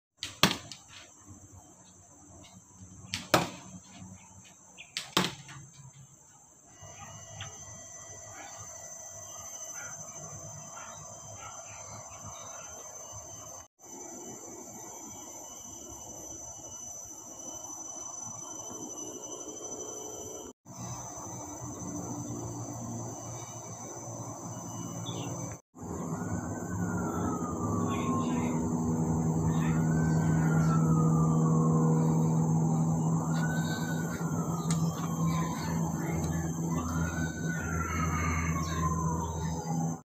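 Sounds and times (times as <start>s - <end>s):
crickets trilling: 0.2s - 40.0s.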